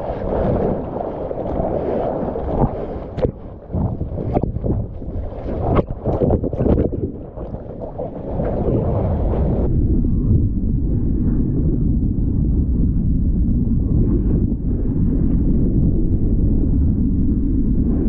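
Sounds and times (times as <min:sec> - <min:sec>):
ocean wave rushing water: 0:00.0 - 0:09.7
water splashing on camera: 0:00.0 - 0:09.7
muffled low underwater rumble: 0:00.0 - 0:18.0
wind on microphone: 0:00.0 - 0:18.0.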